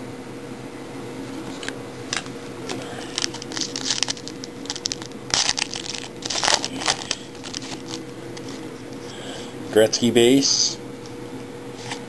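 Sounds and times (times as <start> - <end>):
wrapper crinkling and tearing: 2.7 - 8.6.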